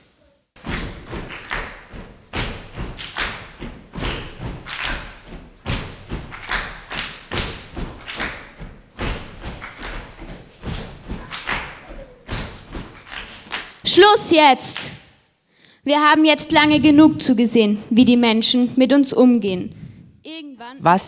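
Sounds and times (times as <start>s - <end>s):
children clapping: 0.6s - 13.8s
children stomping: 0.7s - 13.9s.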